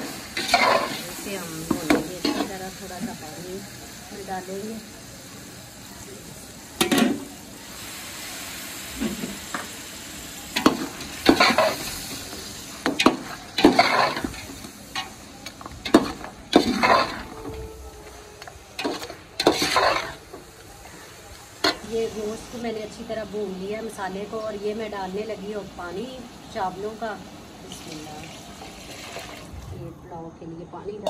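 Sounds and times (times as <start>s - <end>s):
meat sizzling: 0.0s - 29.6s
metal skimmer scraping pot: 15.9s - 17.6s, 18.8s - 20.2s.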